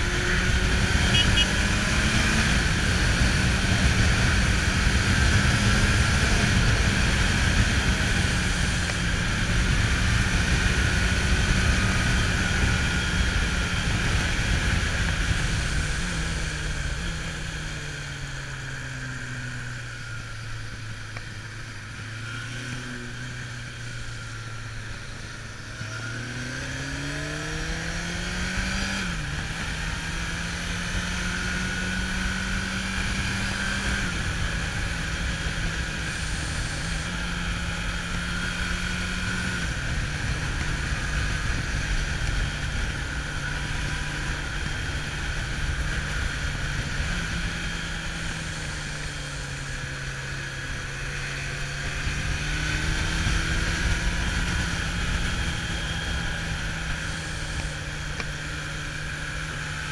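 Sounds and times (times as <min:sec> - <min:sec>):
motorcycle engine running: 0:00.0 - 0:59.9
wind noise: 0:51.0 - 0:58.1.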